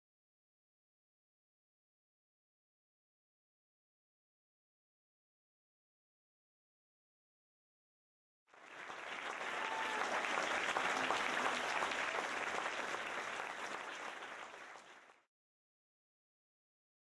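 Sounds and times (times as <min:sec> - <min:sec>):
audience applauding: 0:08.5 - 0:15.3.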